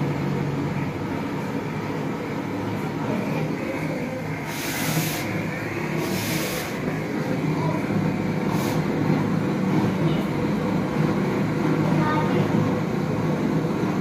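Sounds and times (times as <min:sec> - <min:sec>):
gas torch flame burning: 0:00.0 - 0:14.0
sharp torch hisses: 0:04.4 - 0:06.9, 0:08.4 - 0:08.9.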